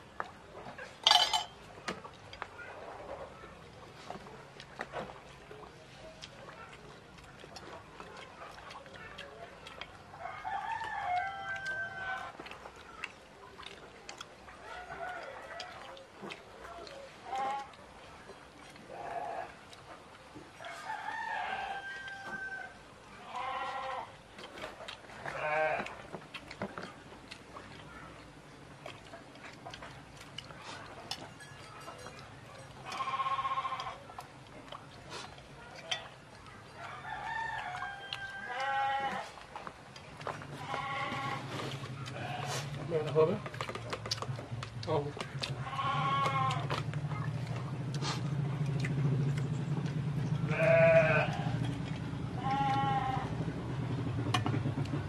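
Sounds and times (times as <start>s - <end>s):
farm animal bleating: 18.9s - 19.6s, 23.2s - 24.1s, 25.3s - 25.9s, 32.8s - 34.0s, 38.4s - 39.4s, 40.6s - 41.5s, 42.1s - 42.7s, 45.6s - 46.7s, 50.4s - 51.6s, 52.4s - 53.3s
steady low hum: 39.2s - 55.0s.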